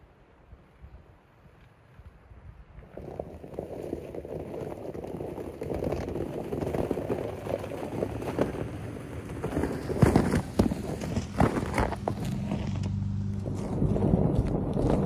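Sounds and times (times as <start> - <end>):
tyres crunching and splashing in slush: 2.8 - 15.0
pickup engine: 6.5 - 15.0.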